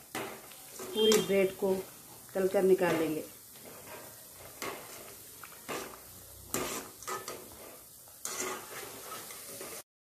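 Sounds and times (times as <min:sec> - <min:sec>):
bread sizzling in hot oil: 0:00.0 - 0:09.9
metal spoon scraping pan: 0:00.1 - 0:01.8, 0:02.8 - 0:09.8.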